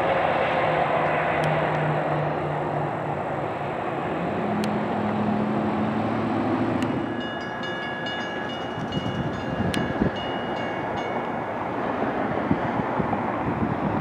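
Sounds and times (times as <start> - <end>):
jet engines rumbling: 0.0 - 14.0
wind buffeting microphone: 7.9 - 14.0.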